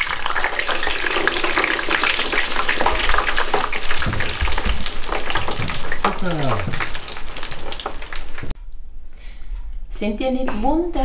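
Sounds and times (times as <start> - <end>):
fries sizzling in hot oil: 0.0 - 8.5.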